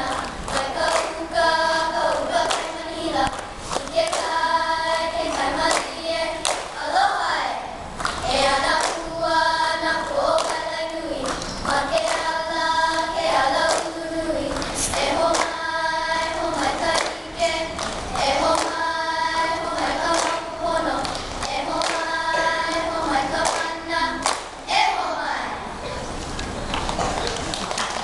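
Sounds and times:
girls singing in unison: 0:00.0 - 0:25.7
sharp hand claps: 0:00.1 - 0:01.2, 0:02.4 - 0:04.4, 0:05.3 - 0:06.8, 0:10.4 - 0:10.6, 0:11.2 - 0:12.3, 0:13.6 - 0:15.6, 0:16.9 - 0:17.2, 0:17.8 - 0:18.8, 0:20.1 - 0:20.4, 0:21.0 - 0:22.8, 0:23.4 - 0:24.6, 0:26.7 - 0:28.0.

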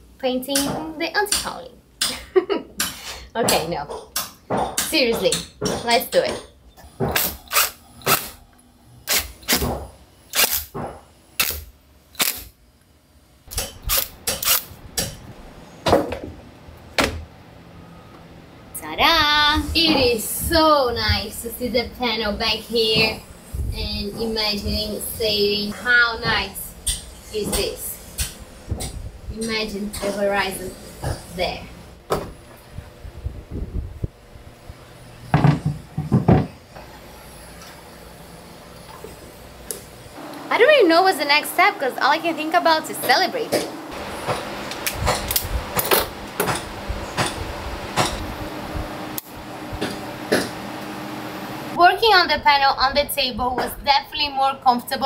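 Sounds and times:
wooden knocks and clunks: 0:35.4 - 0:36.6.

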